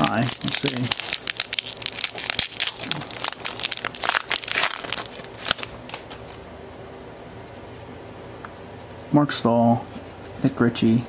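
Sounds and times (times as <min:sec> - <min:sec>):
foil wrapper crinkling: 0:00.0 - 0:06.4.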